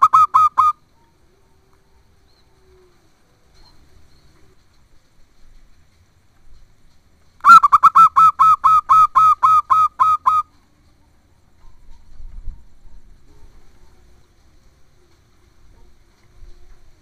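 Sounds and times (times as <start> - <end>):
dove cooing: 0.0 - 4.6, 7.4 - 10.6.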